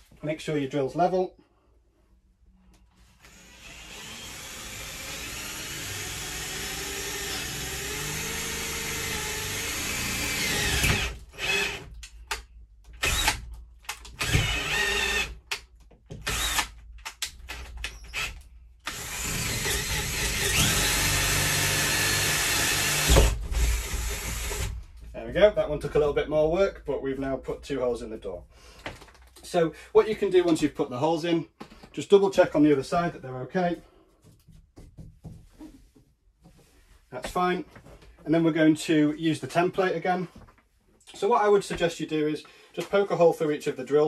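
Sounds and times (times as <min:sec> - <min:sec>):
cordless drill boring wood: 0:03.2 - 0:11.9, 0:13.0 - 0:13.4, 0:14.2 - 0:15.5, 0:16.2 - 0:24.8.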